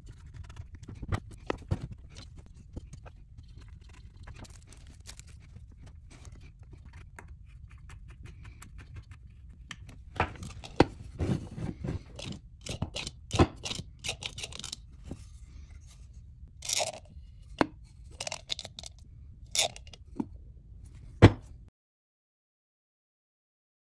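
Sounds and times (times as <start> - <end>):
scratchy rustles: 0.0 - 9.6, 10.4 - 12.4.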